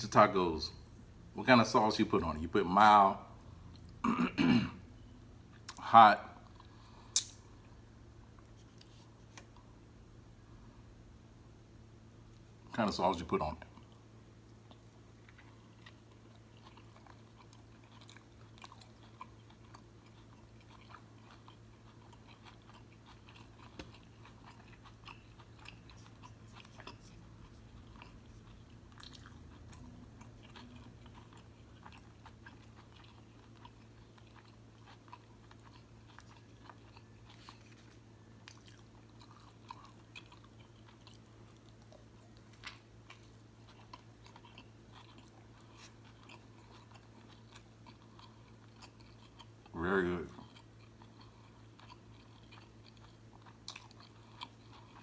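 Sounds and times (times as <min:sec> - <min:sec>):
person chewing: 0:05.0 - 0:07.4, 0:13.7 - 0:55.0.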